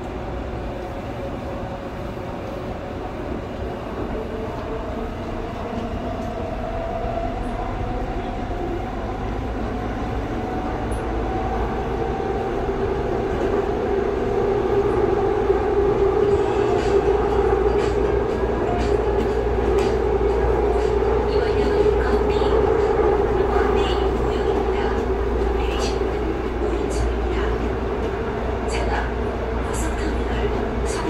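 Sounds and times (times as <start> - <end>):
electric train rumbling: 0.0 - 31.0.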